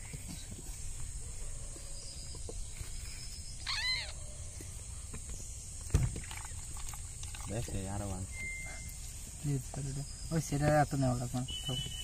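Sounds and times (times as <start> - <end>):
night insects humming: 0.0 - 12.0
animal call: 3.6 - 4.4.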